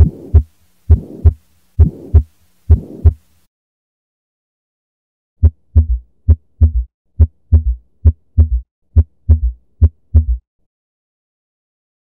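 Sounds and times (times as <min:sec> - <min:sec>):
heartbeat gallop rhythm: 0:00.0 - 0:03.2, 0:05.4 - 0:10.4.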